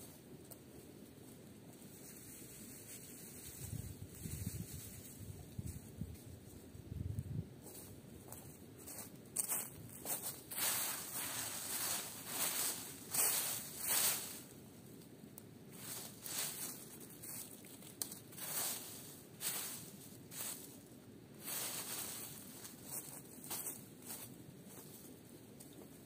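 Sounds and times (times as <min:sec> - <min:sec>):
rustling and scuffing: 0:07.6 - 0:14.6, 0:15.7 - 0:26.0.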